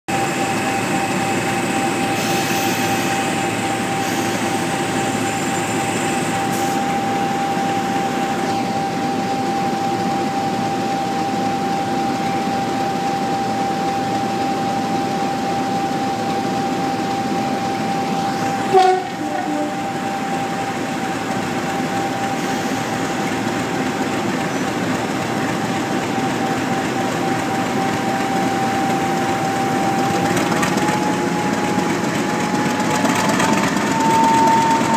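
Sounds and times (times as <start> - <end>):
diesel locomotive engine idling: 0.1 - 34.9
locomotive horn toot: 17.1 - 23.3, 33.6 - 34.9.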